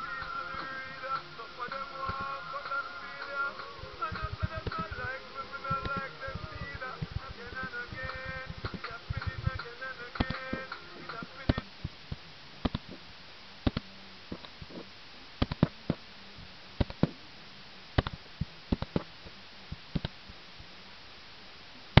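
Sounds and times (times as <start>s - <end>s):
faint steady hum: 0.0s - 22.0s
computer mouse clicking: 4.2s - 4.9s, 10.2s - 10.4s, 12.6s - 13.0s, 15.4s - 16.0s, 16.8s - 17.1s, 18.0s - 19.1s, 19.9s - 20.2s.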